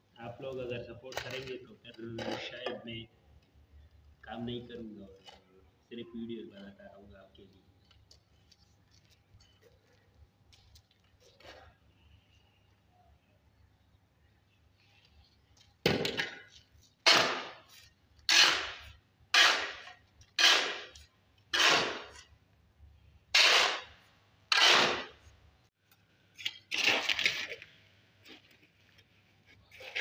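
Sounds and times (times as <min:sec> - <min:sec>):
shovel scraping concrete floor: 0:16.0 - 0:22.3, 0:23.3 - 0:25.3, 0:26.4 - 0:27.6, 0:29.5 - 0:30.0.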